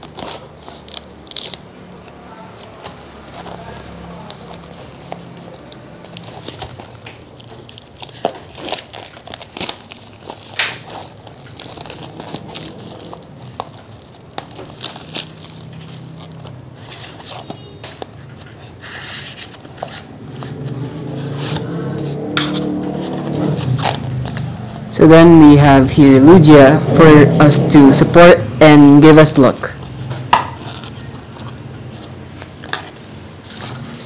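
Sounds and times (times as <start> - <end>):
packaging crinkling and crackling: 0.0 - 21.2, 29.8 - 34.0.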